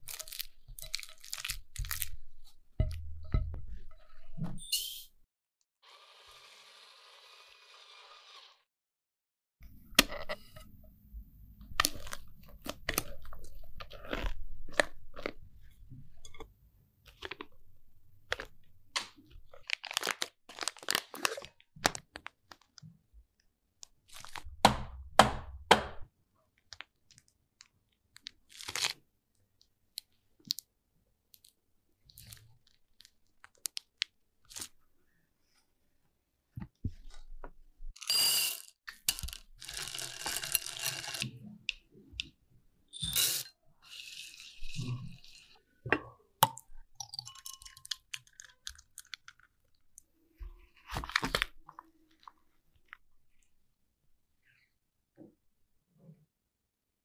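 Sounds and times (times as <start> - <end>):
chocolate chips pouring into glass bowl: 38.0 - 41.2
wet squishing of cream: 48.0 - 53.6.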